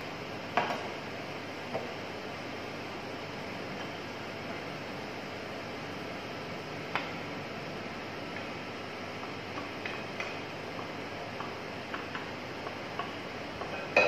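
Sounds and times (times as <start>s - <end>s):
steady background hiss: 0.0s - 14.0s
spatula tapping frying pan: 9.6s - 14.0s.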